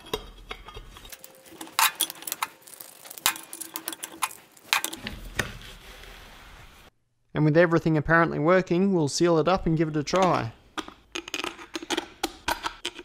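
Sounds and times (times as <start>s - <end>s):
metal mechanism clicks and clacks: 0.0s - 5.1s.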